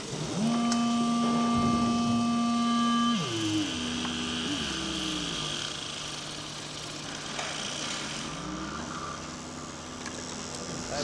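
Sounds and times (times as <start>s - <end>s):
electronic gliding tones: 0.3s - 5.9s.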